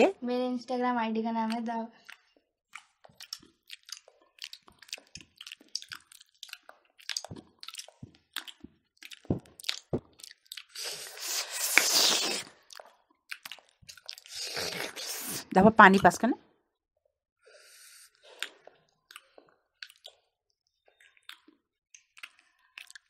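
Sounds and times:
chewing and crunching: 1.4 - 15.3, 17.6 - 23.0
mouth clicks: 1.4 - 16.1.

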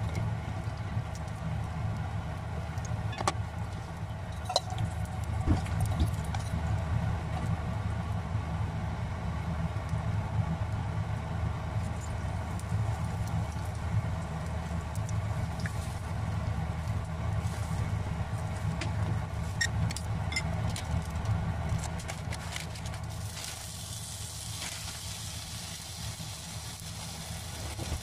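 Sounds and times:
low kitchen hum: 0.0 - 28.0
egg sizzling in a frying pan: 23.0 - 28.0.

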